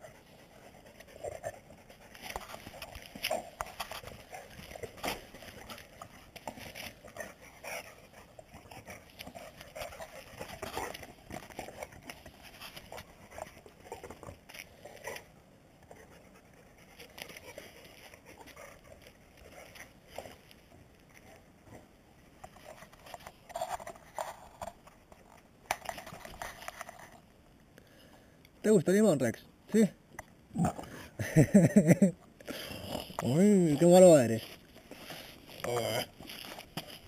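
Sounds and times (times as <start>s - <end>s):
dogs panting: 0.0s - 20.5s
paws tapping on concrete: 0.1s - 27.2s.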